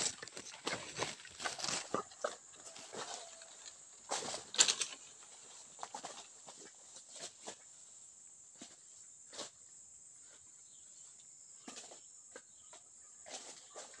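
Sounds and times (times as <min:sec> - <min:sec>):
leaves and twigs rustling: 0:00.0 - 0:07.9, 0:11.6 - 0:14.0.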